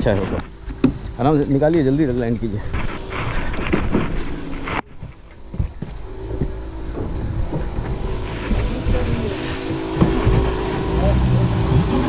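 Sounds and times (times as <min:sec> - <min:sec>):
outboard motors running: 0:00.0 - 0:12.0
wind rumbling on microphone: 0:00.0 - 0:12.0.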